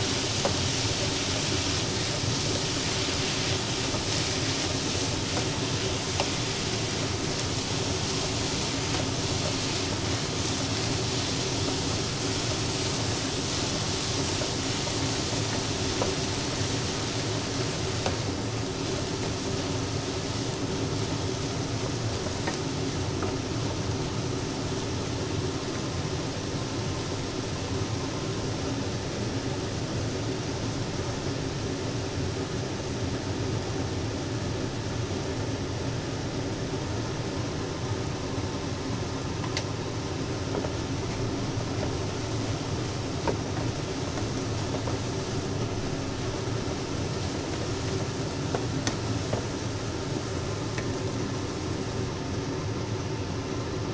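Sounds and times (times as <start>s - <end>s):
eggs sizzling in a frying pan: 0.0s - 31.8s, 36.3s - 52.3s
wooden spatula scraping: 40.4s - 49.6s.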